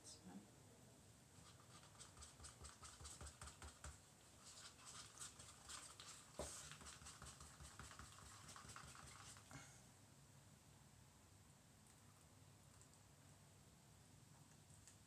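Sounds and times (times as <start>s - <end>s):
stirrer tapping plastic cup: 1.8s - 4.0s, 5.2s - 9.5s.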